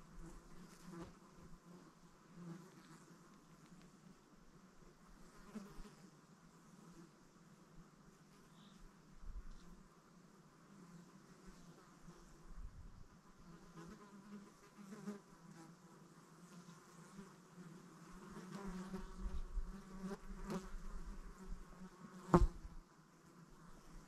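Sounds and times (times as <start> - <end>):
insect buzzing: 10.7 - 24.0.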